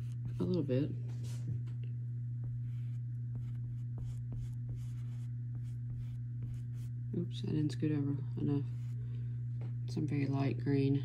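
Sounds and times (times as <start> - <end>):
paintbrush scratching on canvas: 0.0 - 0.9, 2.4 - 7.1, 8.6 - 9.0
steady low hum: 0.0 - 11.0.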